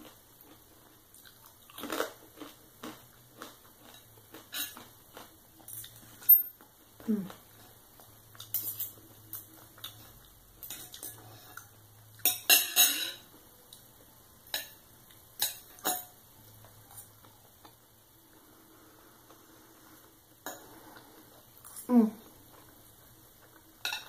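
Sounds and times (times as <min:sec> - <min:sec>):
cutlery scraping on plate: 0:03.9 - 0:04.9, 0:08.4 - 0:09.0, 0:12.2 - 0:13.3, 0:23.8 - 0:24.0.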